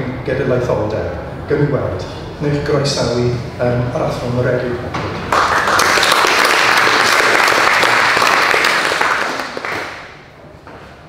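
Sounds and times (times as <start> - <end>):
audience applause: 5.3 - 10.2.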